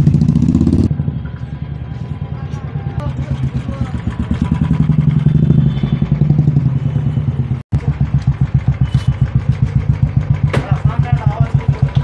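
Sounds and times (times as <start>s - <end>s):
motorcycle engine idling: 3.0s - 12.0s.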